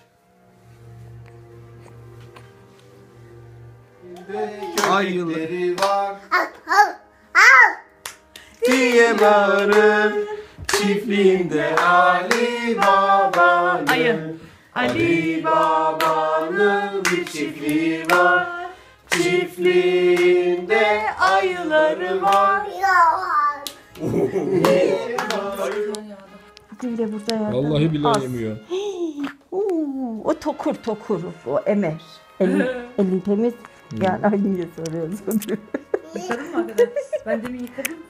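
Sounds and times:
person singing: 4.0s - 6.5s, 8.5s - 23.0s, 24.0s - 26.4s, 32.4s - 33.0s
rhythmic hand claps: 4.2s - 6.7s, 7.9s - 14.2s, 14.8s - 22.6s, 23.6s - 26.1s.

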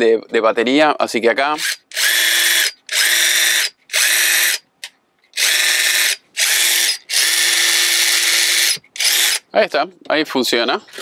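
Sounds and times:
impact driver whirring: 1.6s - 4.6s, 5.3s - 9.4s.

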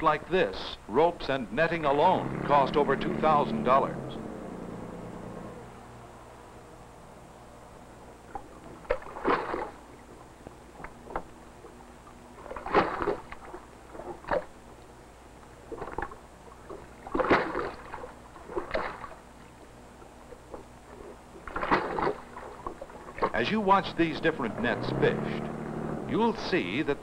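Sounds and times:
water slapping against boat hull: 8.3s - 11.7s, 12.4s - 14.6s, 15.6s - 19.3s, 21.4s - 23.4s.

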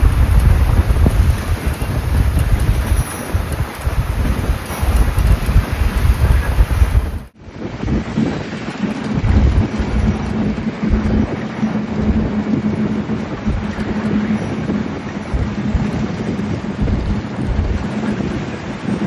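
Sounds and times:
road noise: 0.0s - 7.5s
low engine drone: 0.0s - 19.0s
wind buffeting microphone: 0.0s - 19.0s.

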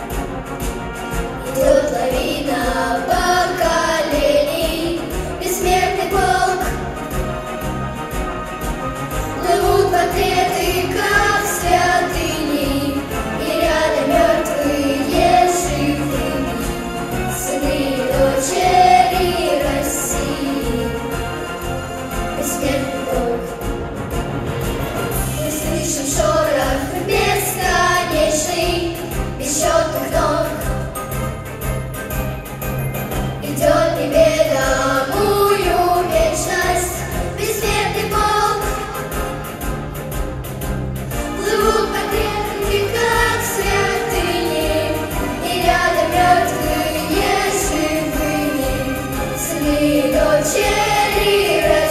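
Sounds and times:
instrumental accompaniment: 0.0s - 51.9s
girls singing together: 1.5s - 6.9s, 9.4s - 21.2s, 25.4s - 30.8s, 33.4s - 39.1s, 41.4s - 51.9s.

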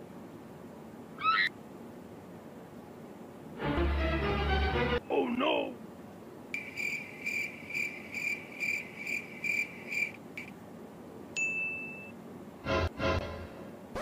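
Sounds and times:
short ding: 11.4s - 12.1s.

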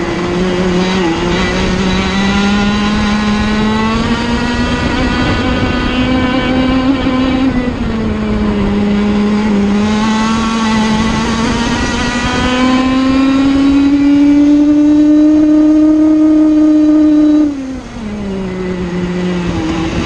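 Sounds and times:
kart engine racing: 0.0s - 20.0s.

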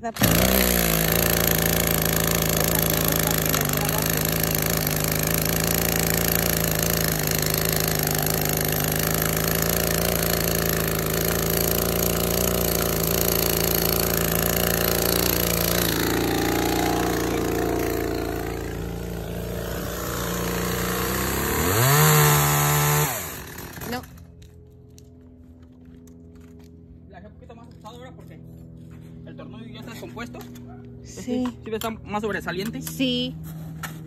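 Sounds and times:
chainsaw engine idling and revving: 0.0s - 25.1s.

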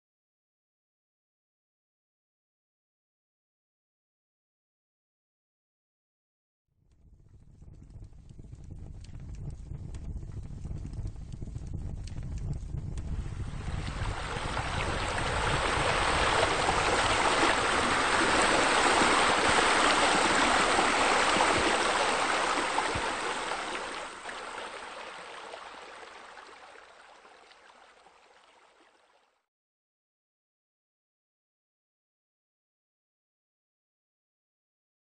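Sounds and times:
running water: 13.2s - 29.3s.

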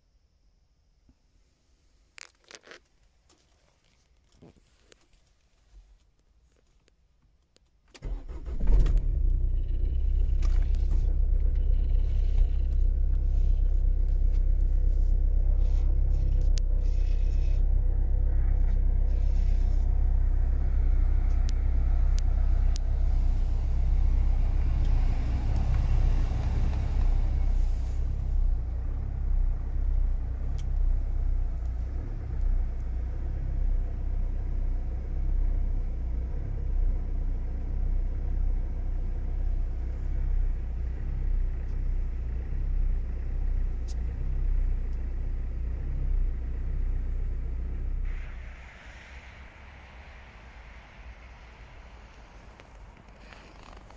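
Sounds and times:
diesel engine starting and idling: 7.9s - 53.9s.

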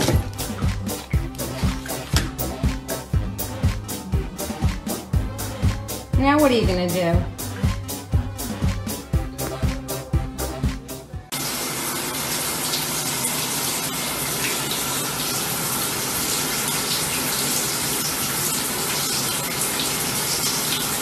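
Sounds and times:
shower water running: 0.0s - 10.1s, 11.3s - 21.0s.

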